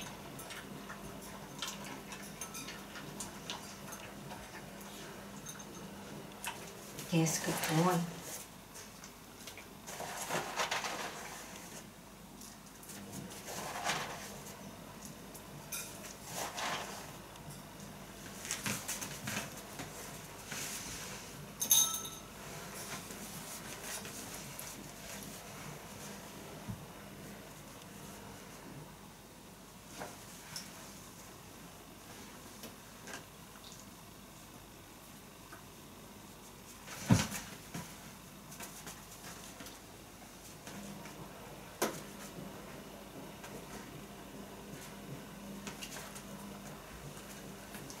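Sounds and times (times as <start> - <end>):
rustling and shuffling on a rug: 6.8 - 17.3, 18.1 - 21.6, 22.3 - 28.8, 29.7 - 33.2, 36.3 - 41.3.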